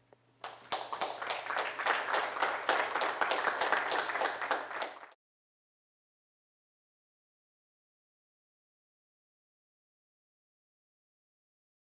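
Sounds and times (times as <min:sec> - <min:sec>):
audience applauding: 0:00.4 - 0:05.2.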